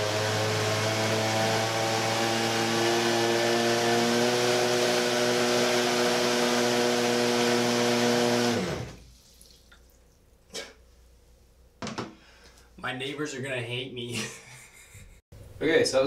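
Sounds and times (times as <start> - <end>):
electric motor whining: 0.0 - 9.0.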